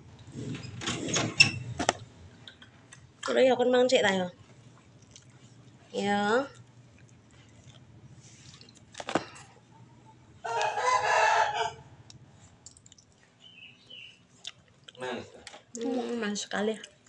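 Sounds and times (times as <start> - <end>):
rooster crowing: 10.4 - 12.0.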